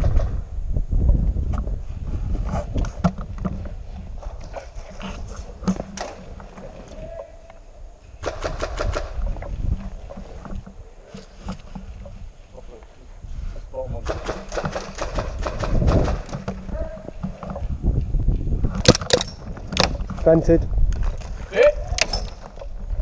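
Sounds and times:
airsoft gunfire burst: 0:08.2 - 0:09.2, 0:14.0 - 0:16.3.

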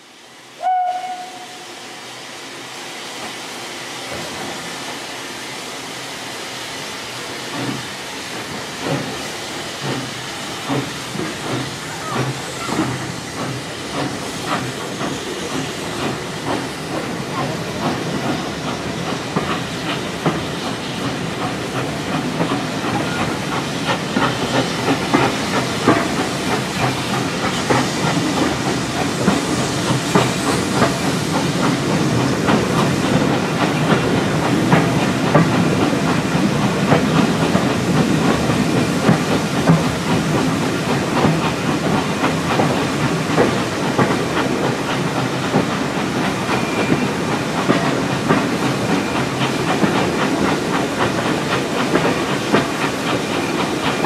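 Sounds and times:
steam hiss: 0:00.0 - 0:54.0
steam locomotive exhaust beats: 0:00.0 - 0:54.0
steam whistle: 0:00.6 - 0:01.8.

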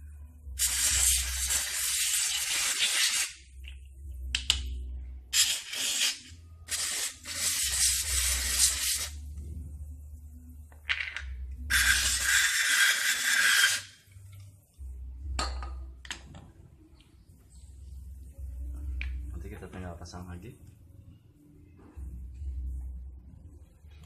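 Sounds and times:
aerosol can spraying: 0:00.6 - 0:03.5, 0:05.3 - 0:09.2, 0:11.7 - 0:14.0.

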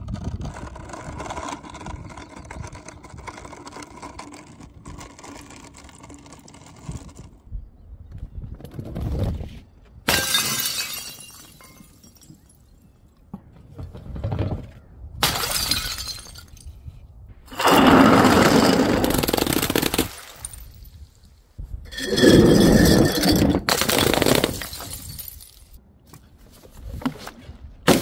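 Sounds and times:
glass bottles shattering: 0:10.1 - 0:12.6, 0:15.2 - 0:16.8, 0:18.5 - 0:21.0, 0:21.9 - 0:25.8.

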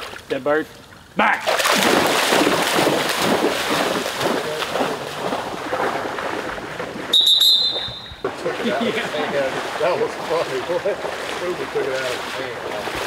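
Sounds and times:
dog splashing through water: 0:01.4 - 0:13.0
short high whistle: 0:07.1 - 0:08.2.

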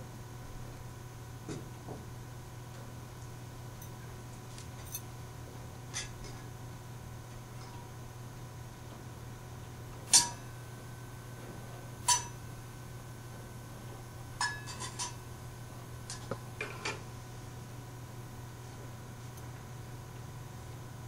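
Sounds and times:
steady low hum: 0:00.0 - 0:21.0
tableware clinking: 0:14.4 - 0:15.2.

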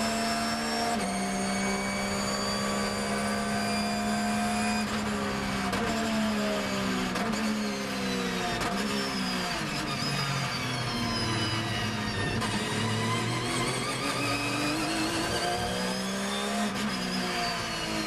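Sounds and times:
race car engine at full throttle: 0:00.0 - 0:18.0.

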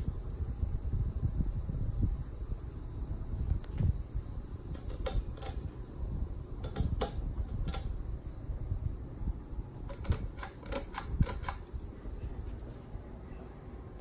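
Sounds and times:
ceiling fan low rumble: 0:00.0 - 0:14.0
sharp clicks: 0:04.8 - 0:05.7, 0:06.6 - 0:07.9, 0:09.9 - 0:11.9.

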